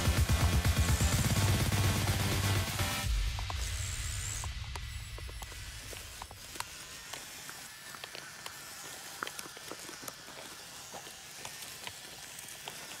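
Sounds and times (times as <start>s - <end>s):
steady hiss: 1.2s - 7.8s.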